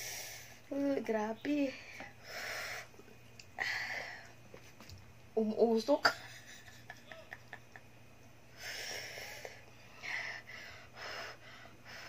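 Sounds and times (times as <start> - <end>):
woman blowing hissing breaths: 0.0 - 0.6, 2.2 - 3.0, 8.5 - 12.0.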